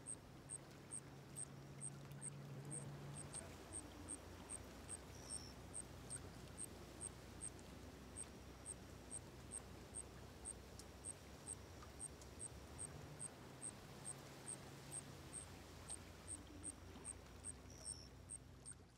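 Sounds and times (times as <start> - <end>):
insect chirping: 0.0 - 18.8
low steady rumble: 0.0 - 18.9.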